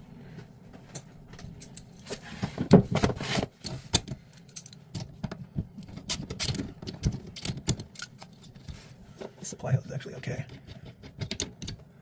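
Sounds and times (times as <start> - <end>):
metal tools clinking: 4.3 - 4.9.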